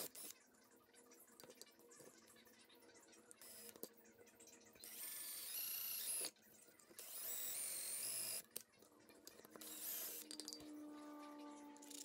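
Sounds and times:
cordless drill boring through metal: 4.8s - 6.3s, 7.0s - 8.4s, 9.5s - 12.0s.

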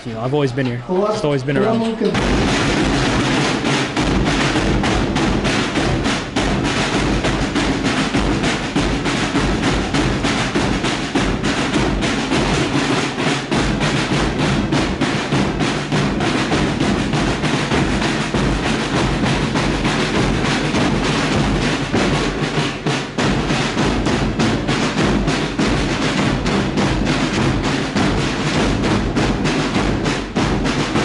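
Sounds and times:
snare and bass drums beating: 0.3s - 31.0s
accordions playing: 0.5s - 2.2s.

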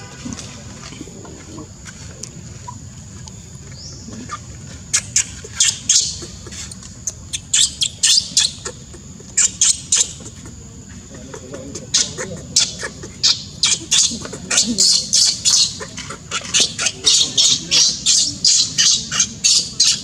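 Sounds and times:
baby monkey shrill squeals: 4.9s - 6.3s, 7.0s - 8.8s, 11.9s - 20.0s.

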